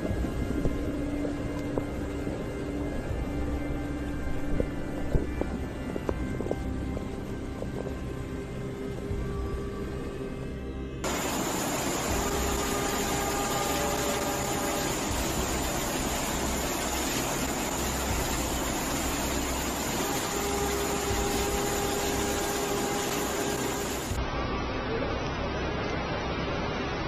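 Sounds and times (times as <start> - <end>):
heavy rain: 0.0 - 9.2, 11.0 - 27.0
faint tonal hum: 0.0 - 27.0
rushing floodwater: 11.0 - 27.0.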